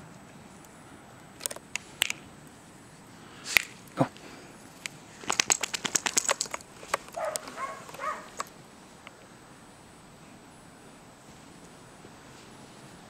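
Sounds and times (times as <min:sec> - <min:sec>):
dog whining: 0:07.2 - 0:08.4.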